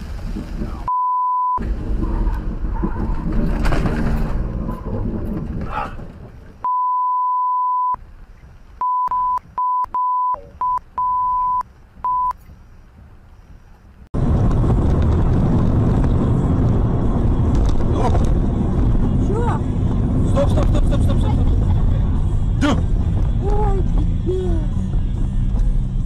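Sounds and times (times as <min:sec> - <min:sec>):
car road noise on wet highway: 0:00.0 - 0:00.9, 0:11.7 - 0:26.0
censor bleeps: 0:00.9 - 0:01.6, 0:06.6 - 0:08.0, 0:08.8 - 0:12.4.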